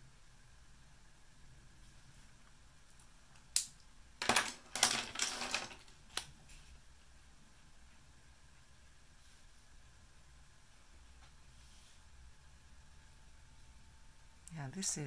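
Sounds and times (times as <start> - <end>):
brush pens clattering on tabletop: 4.2 - 6.0.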